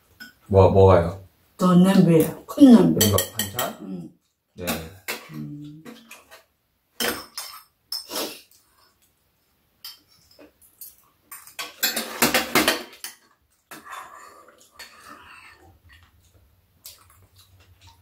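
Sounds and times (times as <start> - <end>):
spoons and chopsticks clinking on bowls: 2.9 - 3.8, 7.0 - 8.2, 9.8 - 14.0.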